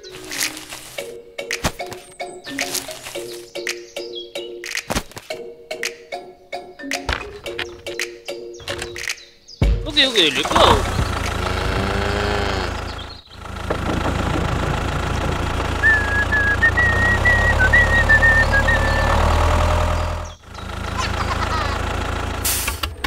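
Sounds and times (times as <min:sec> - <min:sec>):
tractor engine running: 0:00.0 - 0:04.0, 0:09.9 - 0:23.0.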